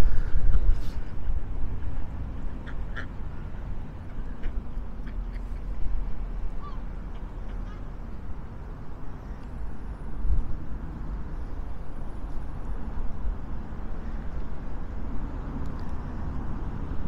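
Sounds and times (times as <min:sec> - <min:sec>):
wind rumbling on microphone: 0:00.0 - 0:03.0.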